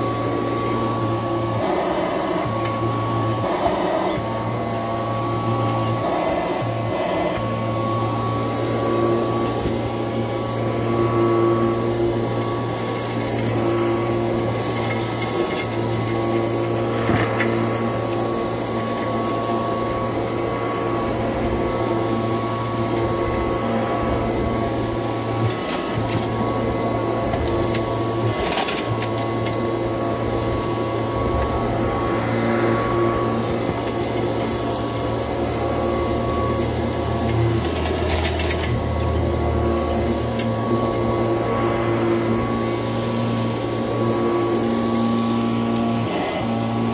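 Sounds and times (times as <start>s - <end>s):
upright vacuum cleaner running: 0.0s - 46.9s
debris crackling in vacuum: 11.4s - 46.9s.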